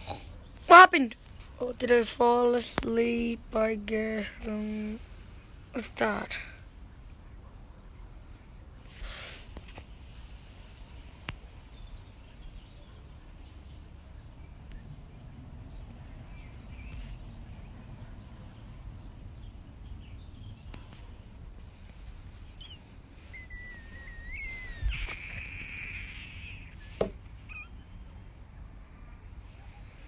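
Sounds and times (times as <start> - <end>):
faint bird chirps: 22.1 - 30.0
bird whistle sliding up: 22.6 - 27.0
knock: 27.0 - 27.2.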